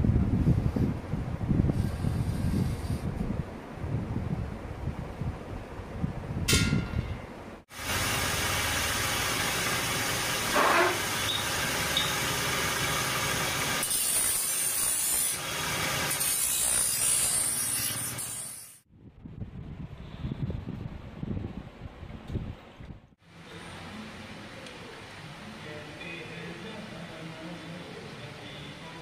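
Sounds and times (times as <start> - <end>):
grinding wheel on steel: 7.8 - 18.8
chalk scraping on steel: 10.5 - 11.1, 13.8 - 15.4, 16.0 - 18.8.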